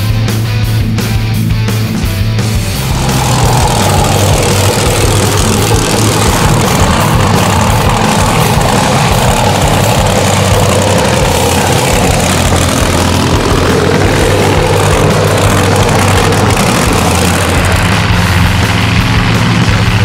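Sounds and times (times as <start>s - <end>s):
truck engine idling: 2.1s - 20.0s.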